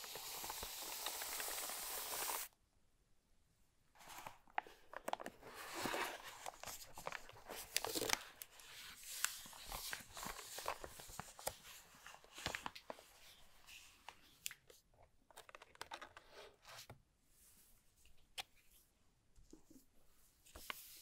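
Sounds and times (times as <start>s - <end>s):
plastic sleeve crinkling: 4.0s - 13.3s.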